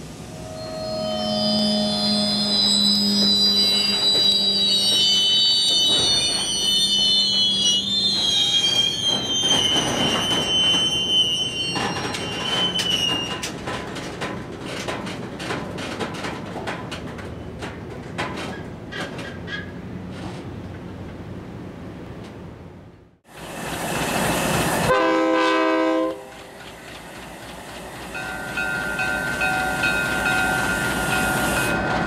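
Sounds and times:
train wheels squealing: 0.2s - 13.5s, 28.0s - 32.0s
train cars clicking and clanking: 0.6s - 21.4s, 23.3s - 32.0s.

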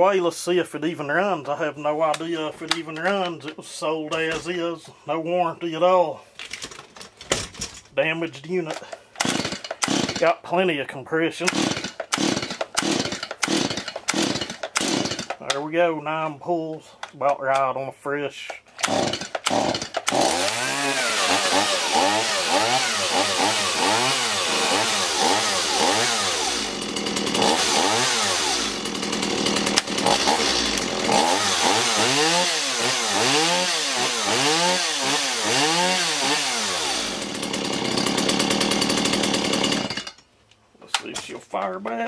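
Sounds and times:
chainsaw revving: 8.7s - 10.3s, 11.4s - 15.6s, 18.8s - 40.2s.

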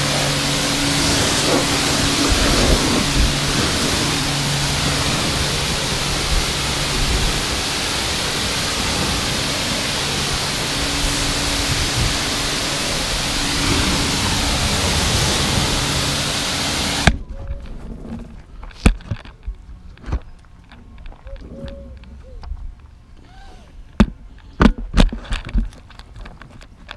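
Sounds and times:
pressure washer spraying: 0.0s - 17.2s.

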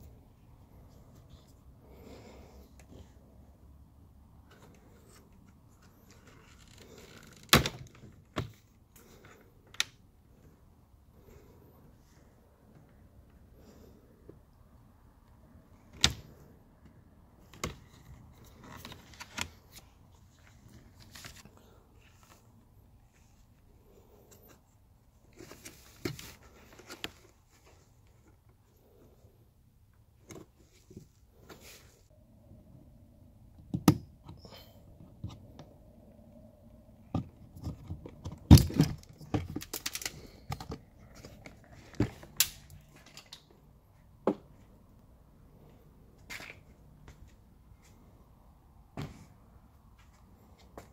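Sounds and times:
plastic parts clicking: 37.1s - 43.5s.

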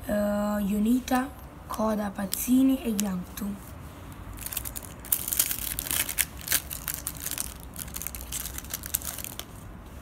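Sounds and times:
plastic wrapper crinkling and tearing: 2.3s - 3.3s, 4.3s - 9.6s.

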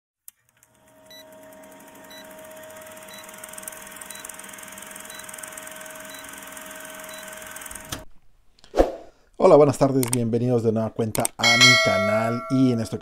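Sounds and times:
film projector whirring: 0.3s - 8.0s.

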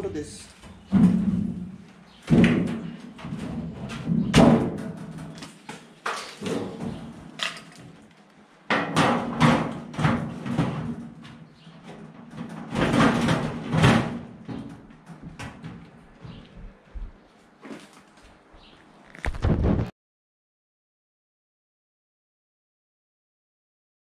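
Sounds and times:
metal cabinet knocking and rattling: 0.8s - 5.4s, 8.7s - 16.4s.

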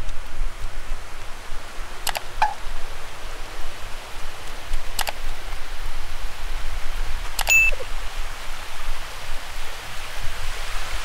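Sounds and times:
wind rumbling on microphone: 0.0s - 11.0s
sharp clicks: 2.0s - 2.6s, 4.7s - 5.2s, 7.4s - 7.8s.

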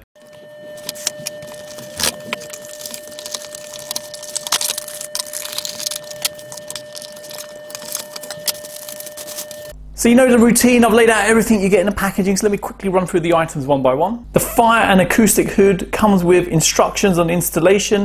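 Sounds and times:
cardboard rustling and cracking: 0.2s - 9.7s
faint steady whine: 0.2s - 14.6s.

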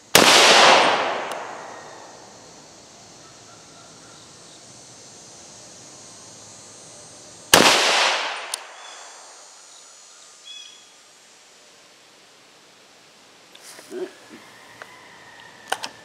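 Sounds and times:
rifle shot echoing: 0.1s - 2.2s, 7.5s - 9.0s.

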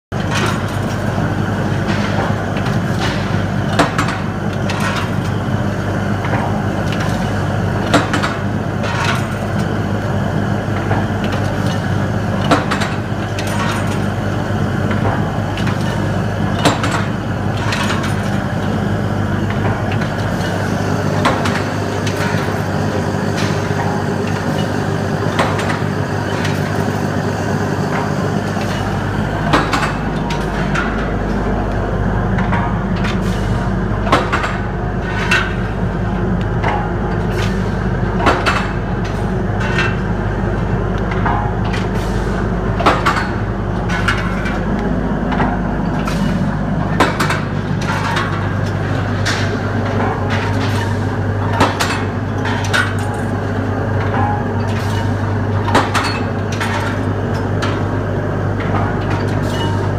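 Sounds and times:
machine low hum: 0.1s - 59.9s
machine clank: 27.9s - 31.5s, 41.1s - 57.9s, 58.6s - 59.9s.

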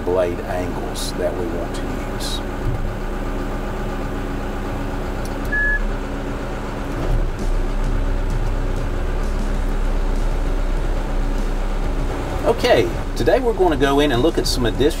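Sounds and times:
diesel engine running: 0.0s - 15.0s
short high beep: 5.5s - 5.9s.

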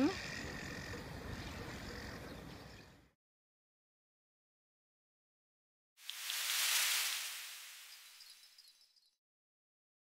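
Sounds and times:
faint hiss: 6.0s - 8.7s.

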